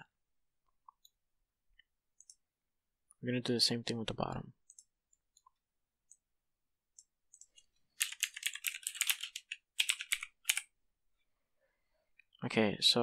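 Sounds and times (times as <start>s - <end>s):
typing on computer keyboard: 7.0s - 10.7s.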